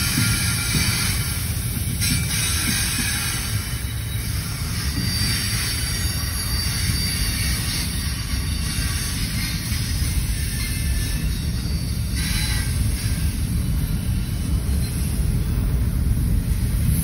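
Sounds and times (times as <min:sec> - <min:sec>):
train wheels rumbling on rail: 0:00.0 - 0:17.0
high-pitched wheel squeal: 0:02.0 - 0:15.1.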